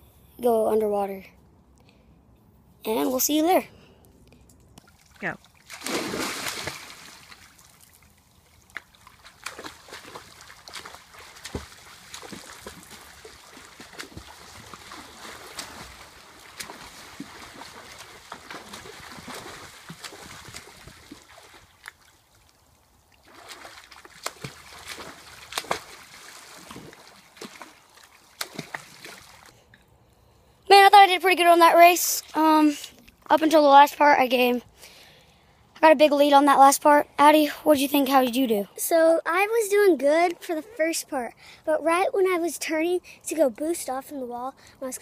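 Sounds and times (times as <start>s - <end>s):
swimmers splashing water: 4.9s - 29.5s.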